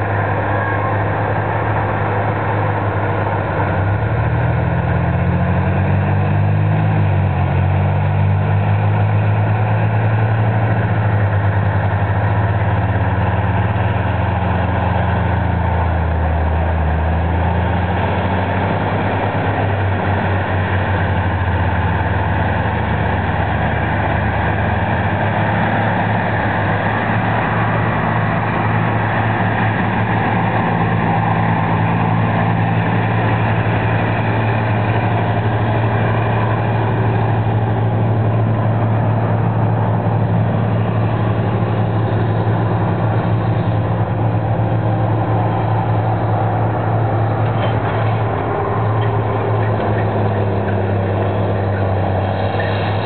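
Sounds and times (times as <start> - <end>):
tractor engine running: 0.0 - 53.0.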